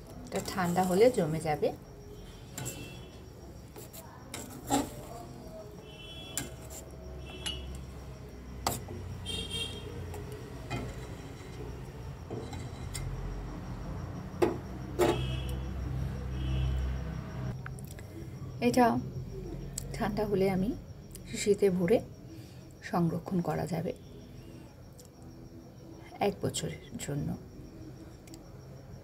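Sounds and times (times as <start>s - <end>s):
metal spatula scraping pan: 0.4s - 1.3s, 2.4s - 5.3s, 6.2s - 7.9s, 10.6s - 13.2s.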